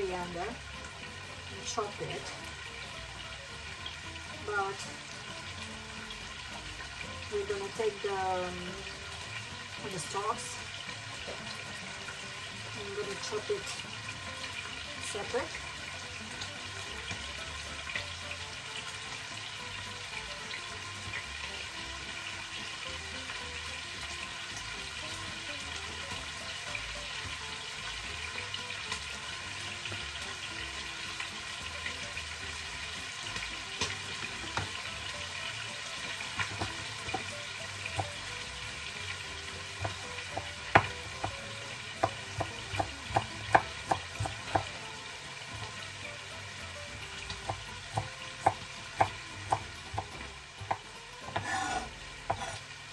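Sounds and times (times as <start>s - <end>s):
chicken sizzling in a pan: 0.0s - 52.9s
knife chopping on wooden board: 39.8s - 44.8s, 47.5s - 52.6s.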